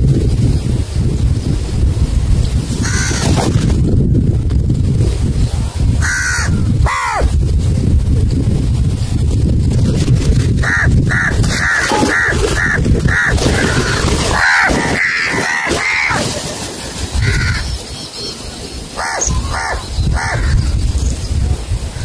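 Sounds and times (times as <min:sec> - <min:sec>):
crows cawing: 0:02.8 - 0:03.2, 0:06.0 - 0:07.3, 0:10.6 - 0:16.3, 0:17.2 - 0:17.7, 0:19.0 - 0:20.6.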